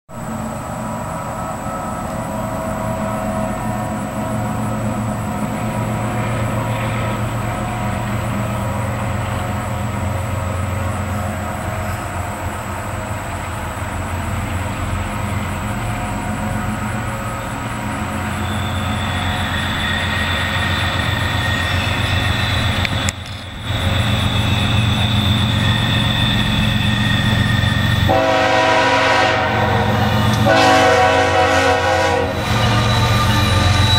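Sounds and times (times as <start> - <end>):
high whine: 0.1 - 33.9
locomotive engine drone: 0.1 - 33.9
locomotive air horn chord: 28.0 - 33.8.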